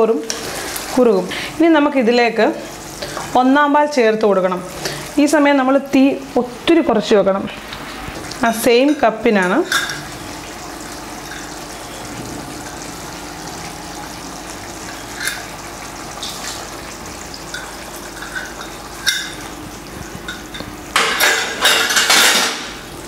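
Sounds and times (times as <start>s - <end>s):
stew simmering in a pan: 7.5s - 22.0s.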